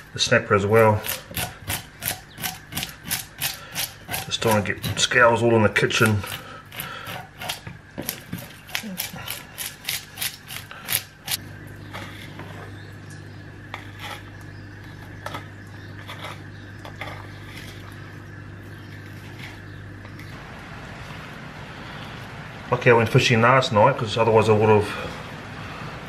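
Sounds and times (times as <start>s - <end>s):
low steady hum: 0.0s - 26.0s
fish scaler scraping scales: 0.7s - 12.7s, 13.7s - 20.4s.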